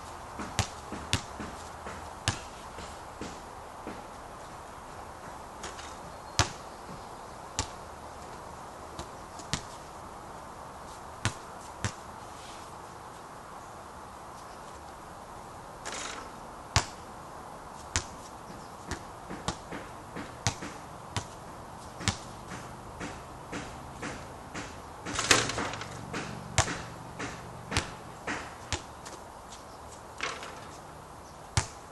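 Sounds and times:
steady background hiss: 0:00.0 - 0:31.9
basketball bouncing: 0:00.4 - 0:04.0, 0:05.2 - 0:07.8, 0:09.0 - 0:09.8, 0:11.2 - 0:12.0, 0:15.9 - 0:16.2, 0:16.8 - 0:17.0, 0:18.9 - 0:21.4, 0:22.0 - 0:29.2, 0:30.2 - 0:30.8, 0:31.6 - 0:31.8.

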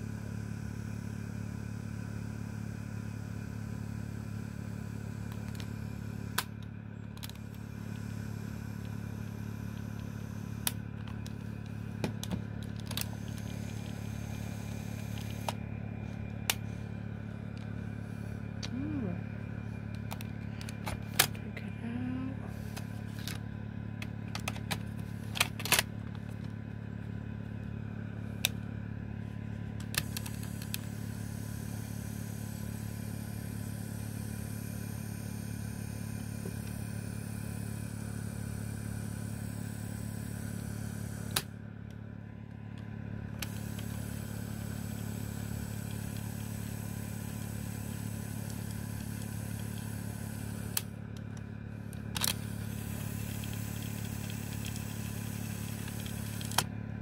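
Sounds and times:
cassette motor hum: 0:00.0 - 0:57.0
player handling clicks: 0:19.9 - 0:21.4, 0:24.0 - 0:26.5, 0:29.8 - 0:30.9, 0:50.7 - 0:54.9, 0:55.7 - 0:56.7.

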